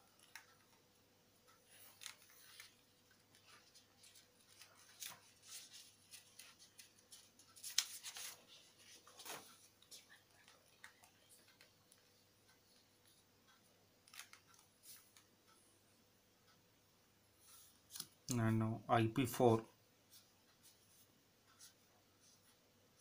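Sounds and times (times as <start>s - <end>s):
paper rustling and crinkling: 1.7s - 11.0s.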